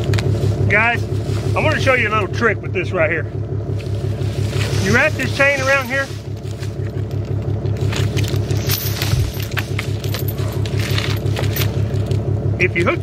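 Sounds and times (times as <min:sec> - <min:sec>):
engine idling: 0:00.0 - 0:13.0
chain clinking and scraping: 0:03.8 - 0:12.3.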